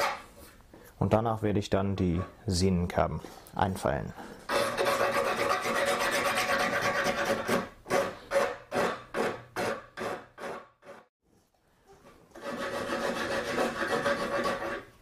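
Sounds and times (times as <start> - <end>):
hand file rasping: 4.2 - 11.1, 12.3 - 15.0.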